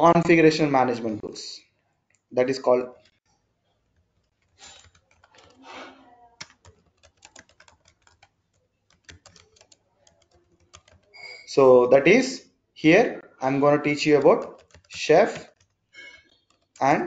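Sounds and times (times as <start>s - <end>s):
keyboard typing: 3.8s - 11.7s, 13.4s - 17.0s.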